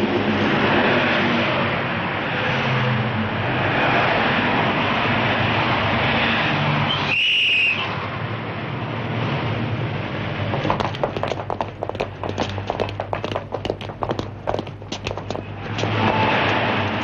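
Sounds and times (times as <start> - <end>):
passing cars: 0.0 - 7.2, 7.8 - 17.0
shrill whistle blast: 6.9 - 7.9
sharp taps: 10.5 - 17.0.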